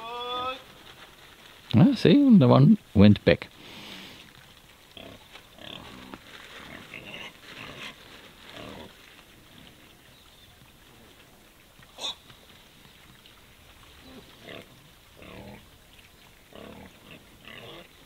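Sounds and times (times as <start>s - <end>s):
pigs grunting softly: 3.8s - 13.2s, 13.8s - 15.8s, 16.4s - 18.0s.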